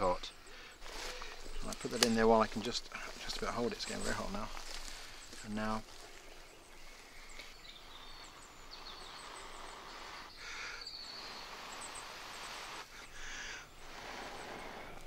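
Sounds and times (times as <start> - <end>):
faint bird chirps: 0.0 - 15.0
steady outdoor hiss: 0.0 - 15.0
person blowing hard: 9.4 - 15.0.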